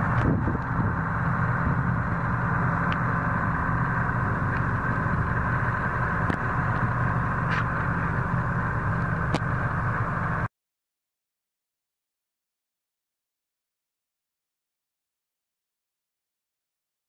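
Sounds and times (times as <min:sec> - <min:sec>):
heavy diesel machinery running: 0:00.0 - 0:10.5.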